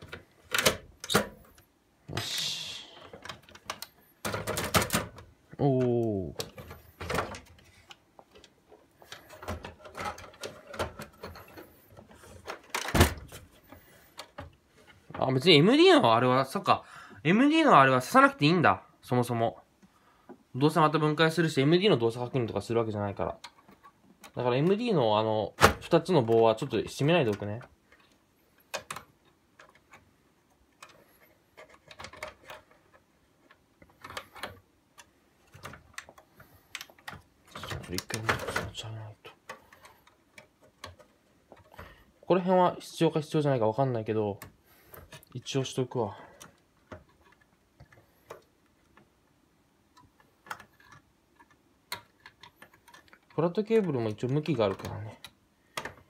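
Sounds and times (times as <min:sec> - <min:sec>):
plastic clicks and knocks: 0:03.0 - 0:14.6, 0:27.2 - 0:42.0, 0:49.9 - 0:56.0.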